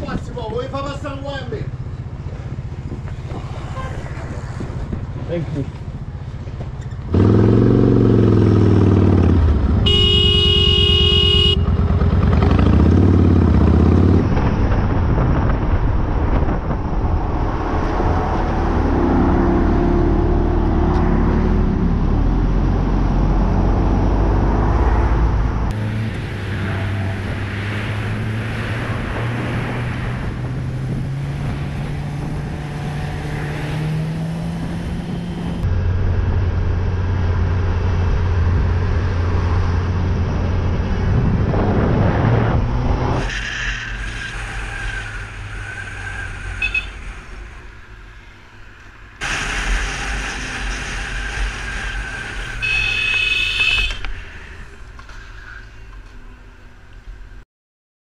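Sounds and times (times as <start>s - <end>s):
motorcycle engine revving: 7.0s - 15.1s, 17.4s - 43.3s
horn blast: 9.8s - 11.7s, 52.4s - 54.0s.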